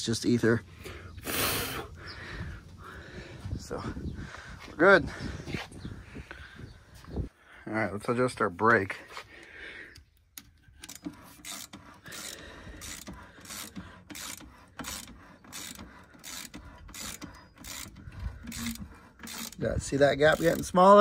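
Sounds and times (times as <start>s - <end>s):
wrench ratcheting clicks: 10.3s - 21.0s.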